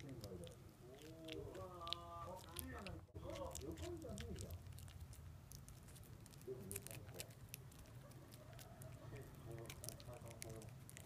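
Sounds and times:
puppy gnawing and licking: 0.0s - 11.0s.

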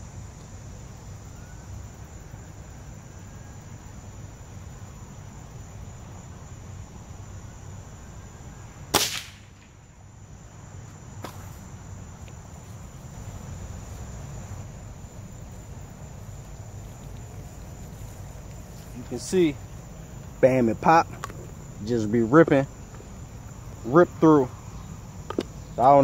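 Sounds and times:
crickets trilling: 0.0s - 26.0s
air rifle shot crack: 8.9s - 9.8s.

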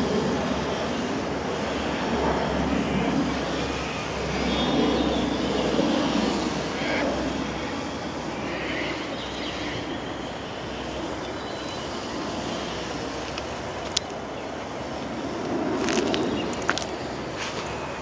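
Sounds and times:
model plane motor whine: 0.0s - 13.4s
wind rushing over microphone: 0.0s - 18.0s.

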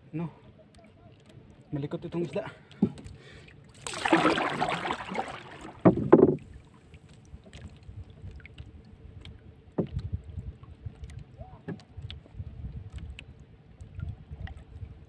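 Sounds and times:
water lapping against hull: 0.0s - 15.0s
knocks against boat: 2.8s - 3.1s, 5.8s - 6.5s.

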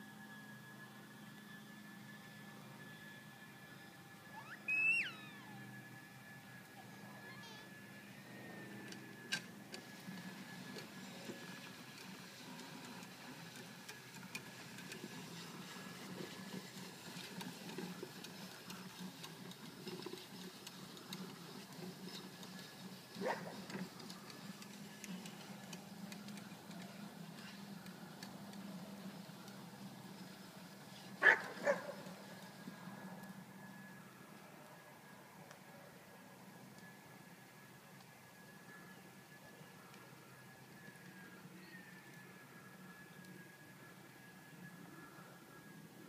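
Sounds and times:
outdoor background: 0.0s - 46.0s
dog barking: 31.2s - 32.0s.

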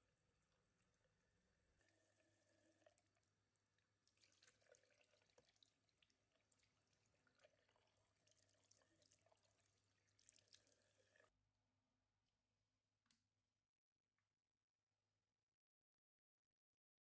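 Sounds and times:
faint tap water running: 0.0s - 11.3s.

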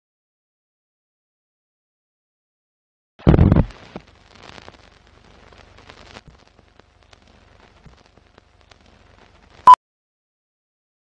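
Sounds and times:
film crackle clicks and pops: 3.2s - 9.7s
film hiss: 3.2s - 9.8s
low steady hum: 3.2s - 9.8s.

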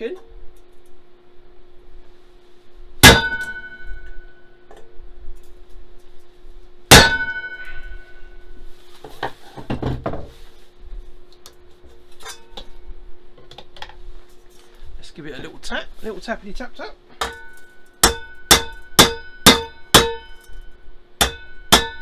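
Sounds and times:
hammer striking chisel on metal: 3.0s - 4.1s, 6.9s - 8.0s, 17.2s - 20.6s, 21.2s - 22.0s
wok ringing: 3.0s - 4.6s, 6.9s - 8.6s, 12.2s - 12.6s, 17.2s - 22.0s.

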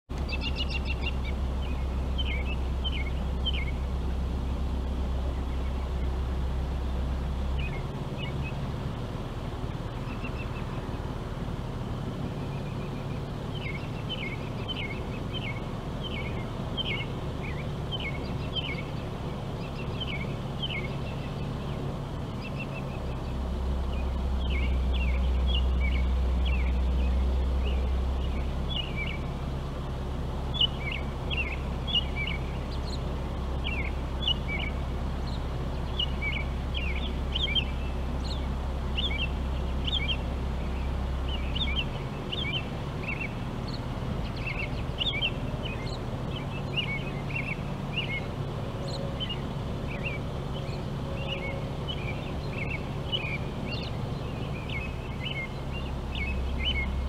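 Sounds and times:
songbirds chirping: 0.1s - 57.0s
steady low rumble: 0.1s - 57.0s.

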